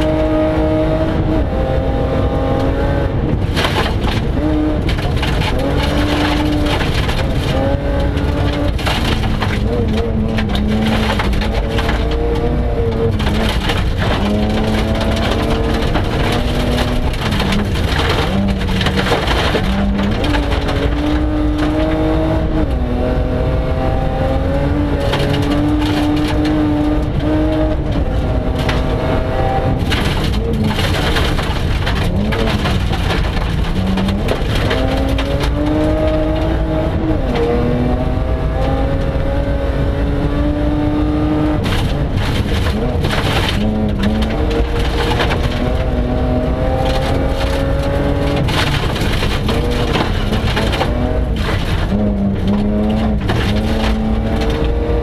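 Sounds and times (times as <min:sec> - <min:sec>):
rally car engine revving: 0:00.0 - 0:55.0
tyres crunching on gravel: 0:03.5 - 0:22.0, 0:41.4 - 0:55.0.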